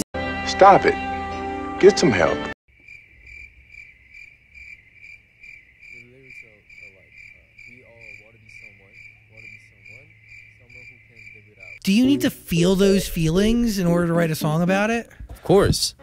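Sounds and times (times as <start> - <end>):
cricket chirping: 2.7 - 13.7.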